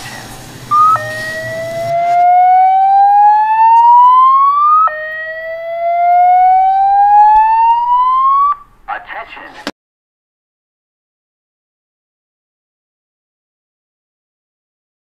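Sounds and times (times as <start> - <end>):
siren-like whine rising in pitch: 0.6 - 8.7.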